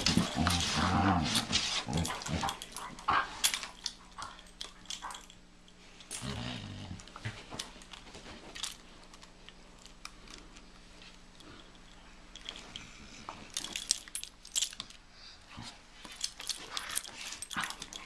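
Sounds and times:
dogs growling: 0.0s - 5.3s, 6.1s - 7.1s
dogs scuffling: 0.0s - 5.3s.

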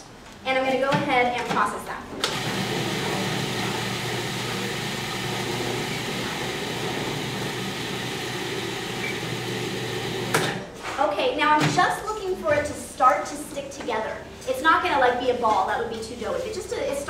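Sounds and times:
food processor chopping: 2.3s - 10.6s.

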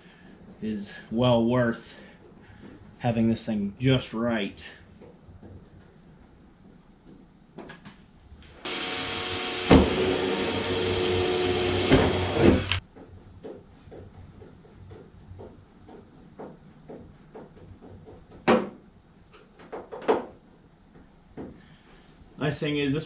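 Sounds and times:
power drill boring metal: 8.7s - 12.8s.

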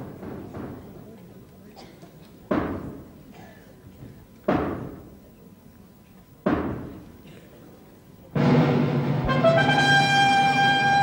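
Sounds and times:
heavy blows on stage floor: 8.4s - 11.0s.

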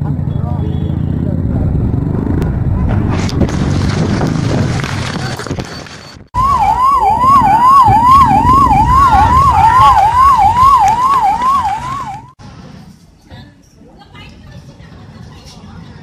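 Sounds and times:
noisy commotion: 0.9s - 12.9s
emergency siren wailing: 6.4s - 12.4s.

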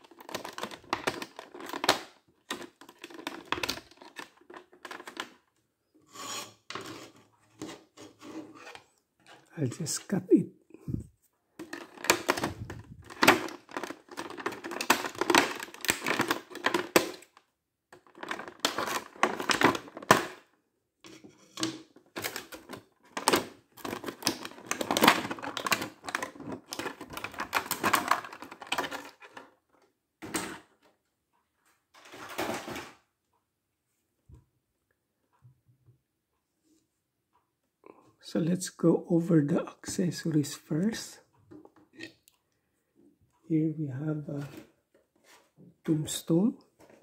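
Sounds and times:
plastic packaging crinkling: 0.0s - 5.4s, 11.6s - 17.4s, 18.0s - 20.3s, 22.2s - 29.5s.

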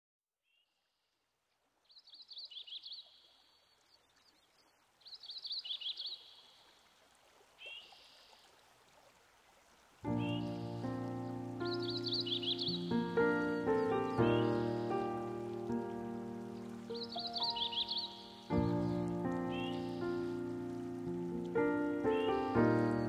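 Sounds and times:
songbird singing: 1.8s - 6.9s, 7.6s - 8.6s, 10.1s - 23.0s
music: 10.1s - 23.0s.

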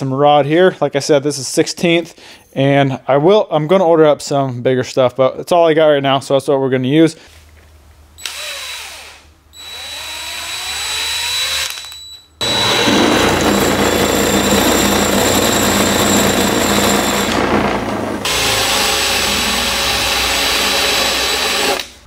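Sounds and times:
cordless drill whirring: 8.2s - 22.0s.

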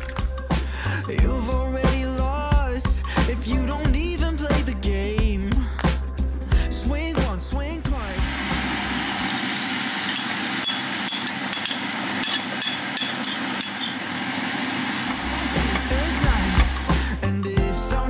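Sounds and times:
background music: 0.0s - 9.8s, 15.0s - 18.0s
bread frying in a pan: 8.3s - 17.0s.

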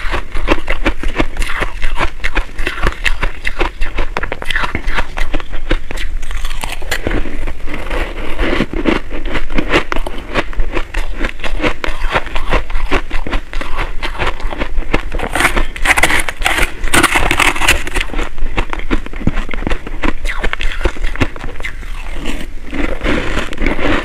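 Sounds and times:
crunching and chewing ice: 0.0s - 24.0s
metal spoon scraping ice: 15.2s - 18.2s.

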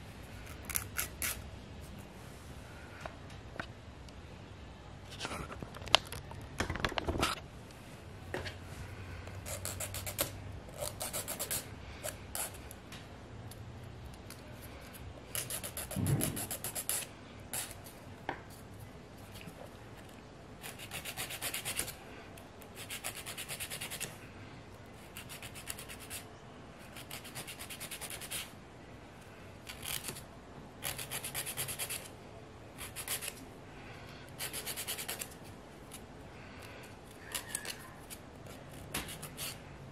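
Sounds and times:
nail file rasping: 9.5s - 12.6s, 15.3s - 17.8s, 20.6s - 22.0s, 22.8s - 24.1s, 25.0s - 26.2s, 26.9s - 28.5s, 30.8s - 32.1s, 32.8s - 33.4s, 34.4s - 35.4s, 37.3s - 39.6s.

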